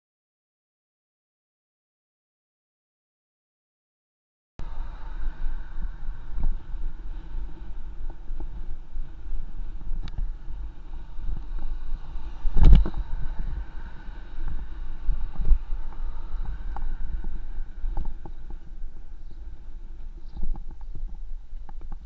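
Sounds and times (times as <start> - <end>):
wind buffeting microphone: 4.6 - 22.0.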